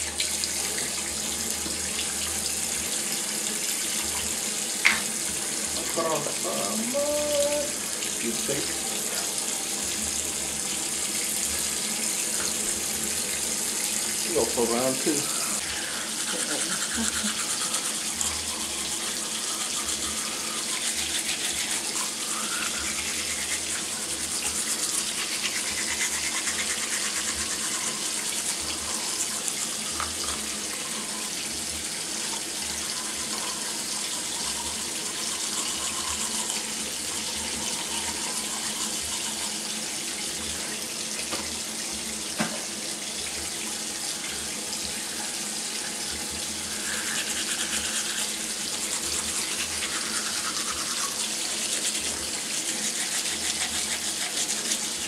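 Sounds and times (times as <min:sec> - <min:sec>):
toothbrush scrubbing teeth: 0:00.2 - 0:40.8, 0:45.0 - 0:55.0
tap running: 0:41.3 - 0:41.6, 0:42.3 - 0:42.8.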